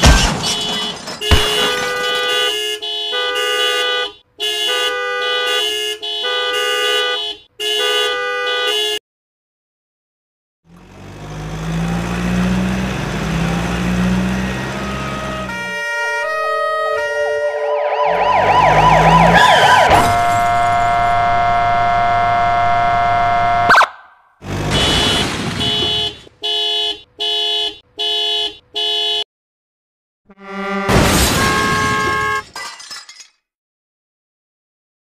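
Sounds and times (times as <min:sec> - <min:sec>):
long horn blast: 0:13.8 - 0:23.8, 0:30.3 - 0:32.4
warbling siren: 0:14.7 - 0:24.2
short horn honks: 0:30.3 - 0:32.5.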